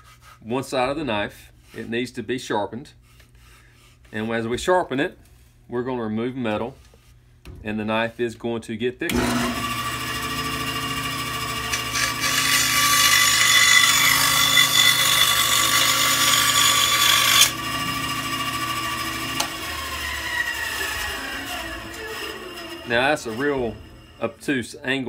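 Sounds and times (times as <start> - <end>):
bandsaw cutting wood: 9.1 - 24.4
bandsaw humming: 9.1 - 24.6.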